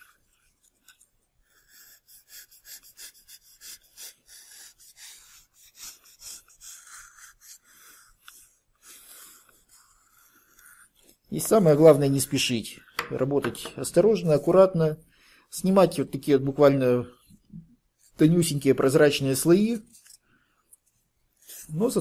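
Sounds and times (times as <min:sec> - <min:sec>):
knife scraping foam: 0:00.0 - 0:11.3, 0:21.0 - 0:22.0.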